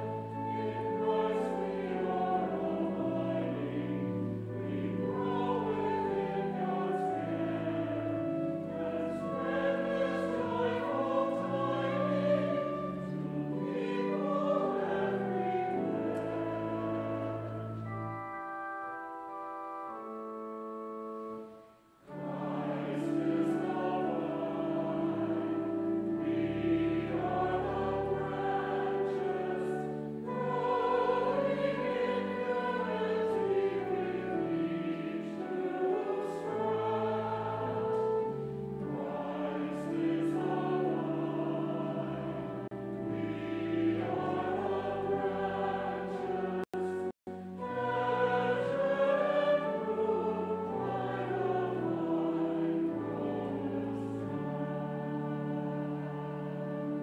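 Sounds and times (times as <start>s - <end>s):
church music with sustained chords: 0.0s - 57.0s.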